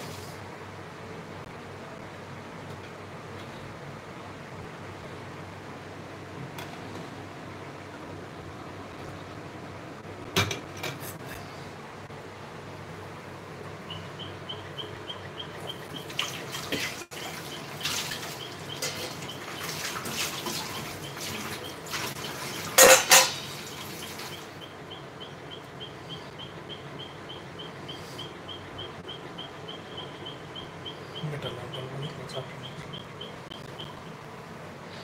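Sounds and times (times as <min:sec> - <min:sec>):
metal clanks: 0:22.8 - 0:23.5.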